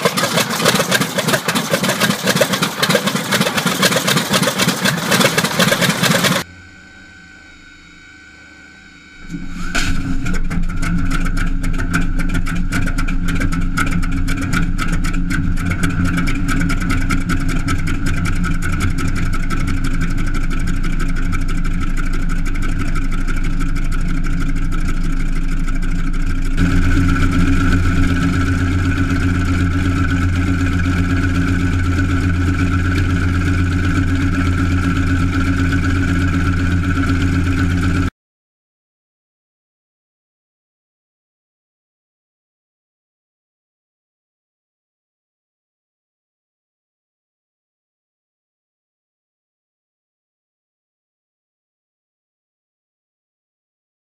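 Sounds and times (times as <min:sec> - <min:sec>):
radial engine running with popping: 0:00.0 - 0:38.1
cartridge starter bang: 0:09.6 - 0:10.6.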